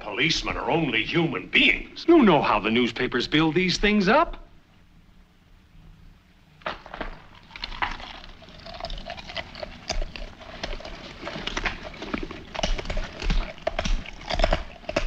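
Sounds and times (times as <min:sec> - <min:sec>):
man chewing food noisily: 0:06.8 - 0:15.0.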